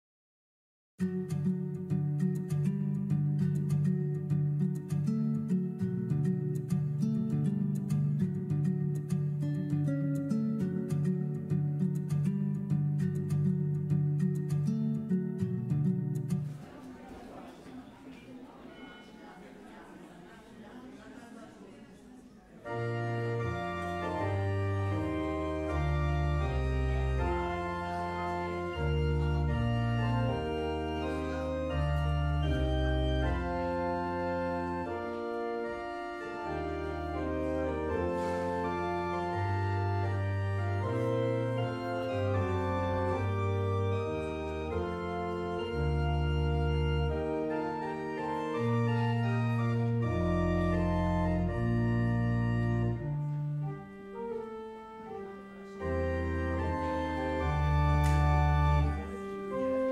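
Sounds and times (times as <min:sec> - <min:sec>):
pipe organ playing chords: 0:22.6 - 0:59.9.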